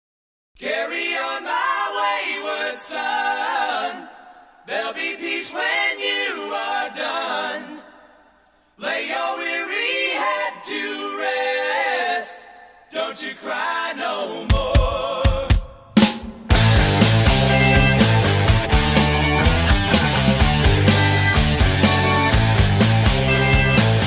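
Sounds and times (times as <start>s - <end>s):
a cappella group singing: 0.6s - 16.0s.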